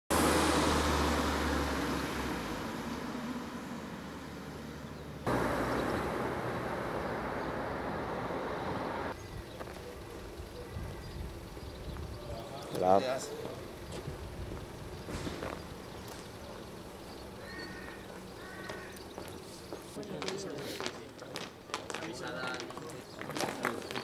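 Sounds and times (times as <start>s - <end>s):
car driving past: 0.1s - 9.2s
outdoor background noise: 0.1s - 24.0s.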